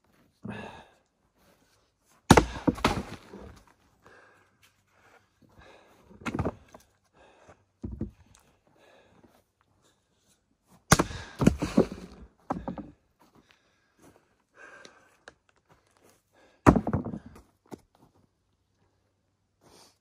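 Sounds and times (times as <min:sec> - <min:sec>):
axe splitting firewood: 0:02.3 - 0:03.6, 0:06.2 - 0:06.7, 0:10.9 - 0:13.0, 0:16.6 - 0:17.4.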